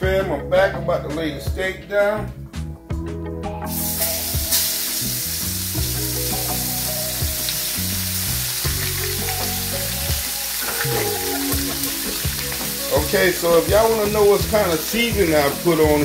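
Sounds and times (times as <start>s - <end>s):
steaks sizzling in hot oil: 3.6s - 16.0s.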